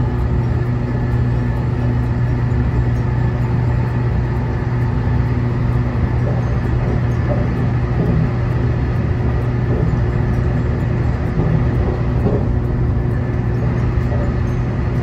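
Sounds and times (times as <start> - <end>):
low electric hum: 0.0 - 15.0
train cabin rumble: 5.4 - 15.0.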